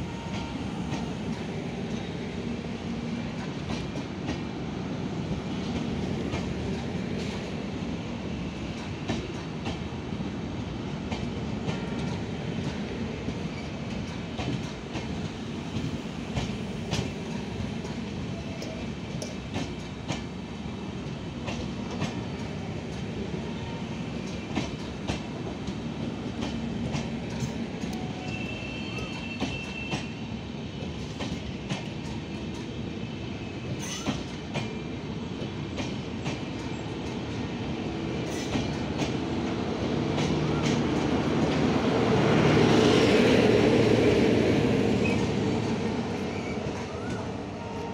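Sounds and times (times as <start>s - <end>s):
train coaches rumbling past: 0.0s - 47.9s
brief high squeal: 28.2s - 30.1s.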